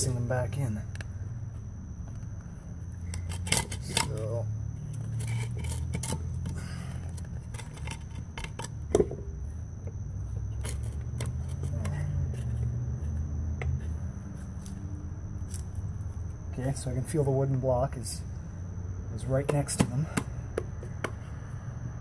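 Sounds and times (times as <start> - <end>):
steady low hum: 0.0 - 22.0
wooden blocks clicking and scraping: 3.0 - 4.3, 4.9 - 8.8.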